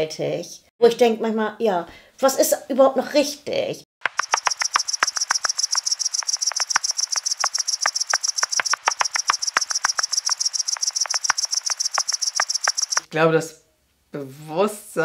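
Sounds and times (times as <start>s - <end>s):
cricket trilling: 4.0s - 13.1s
sharp clicks: 4.0s - 13.1s.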